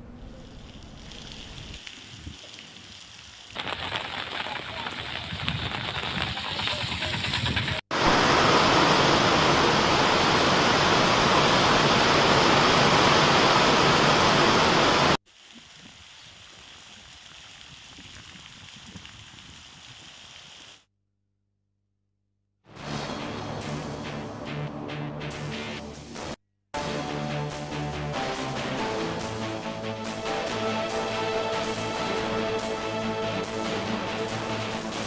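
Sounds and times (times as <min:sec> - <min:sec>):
rain hissing: 0:00.2 - 0:07.2, 0:07.9 - 0:20.9
heavy downpour: 0:00.4 - 0:06.9, 0:07.9 - 0:19.6.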